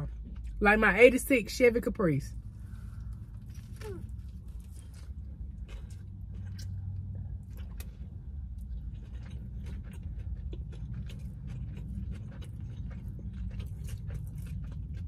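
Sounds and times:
low steady car hum: 0.0 - 15.0
chewing with mouth clicks: 2.7 - 15.0.

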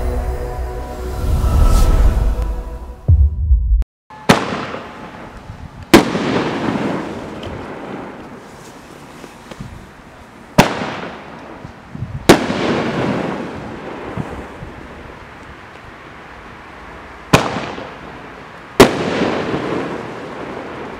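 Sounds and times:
firework bursting in sky: 4.1 - 8.5, 12.1 - 14.9, 17.3 - 18.0
firework launch bangs: 4.2 - 5.3, 5.9 - 8.1, 10.6 - 11.2, 12.2 - 14.4, 17.3 - 17.9, 18.8 - 20.6.

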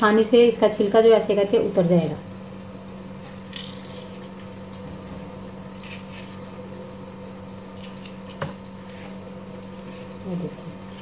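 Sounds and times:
tomato skin peeling crackles: 2.7 - 11.0.

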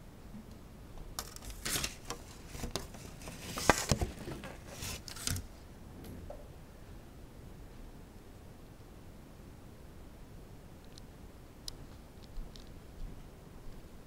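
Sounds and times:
handling clicks taps and rustles: 1.2 - 5.5.

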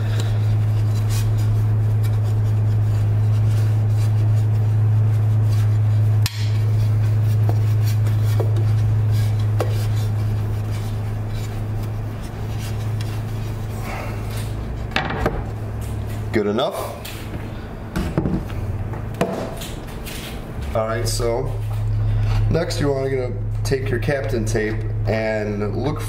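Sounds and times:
cloth rubbing on glass: 0.0 - 14.9
steady low hum: 0.0 - 26.0.

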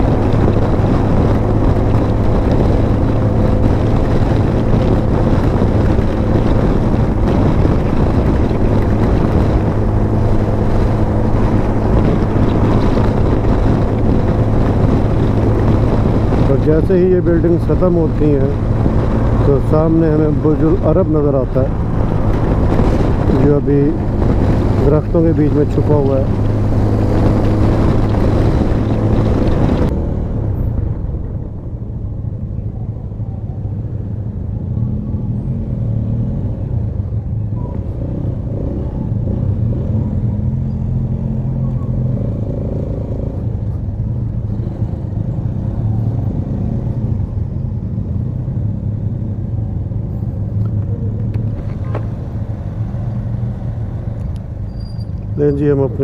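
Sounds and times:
wind rush: 0.0 - 35.1.

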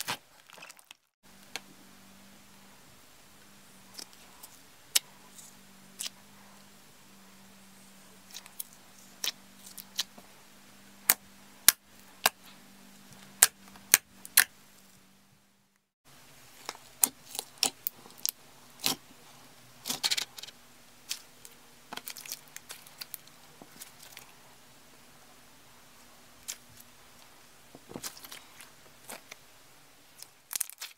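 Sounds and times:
crunchy slime crackling: 22.0 - 24.3, 30.2 - 30.9.

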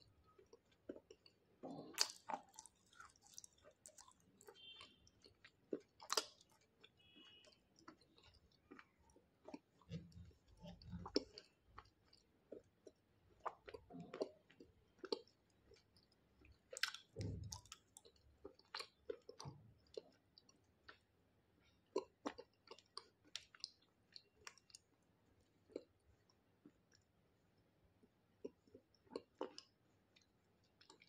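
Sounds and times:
wet mouth clicks chewing: 0.3 - 21.0, 28.4 - 31.0.

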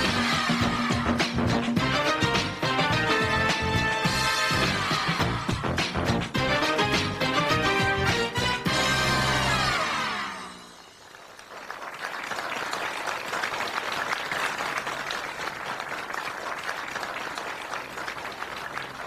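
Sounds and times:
television theme music: 0.0 - 11.4
audience applauding: 10.8 - 19.0.

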